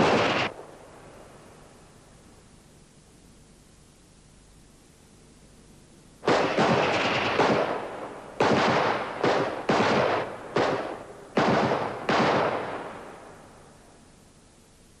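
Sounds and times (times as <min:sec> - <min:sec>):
gunshots with echo: 0:00.0 - 0:00.6, 0:06.2 - 0:13.2.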